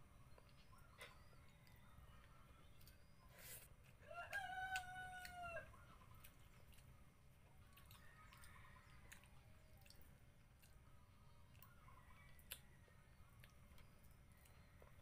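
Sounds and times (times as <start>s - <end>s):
rooster crowing: 4.0s - 5.7s.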